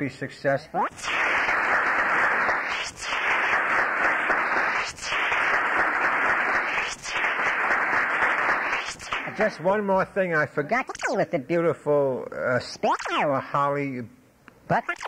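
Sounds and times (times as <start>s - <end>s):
tape hiss: 0.0s - 15.0s
audience applauding: 0.9s - 9.6s.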